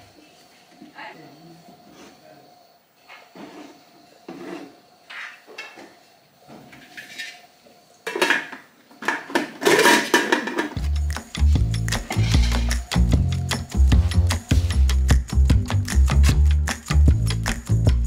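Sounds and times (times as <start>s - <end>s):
metal pot lid clattering: 8.1s - 10.8s
music with heavy bass beat: 10.8s - 18.0s.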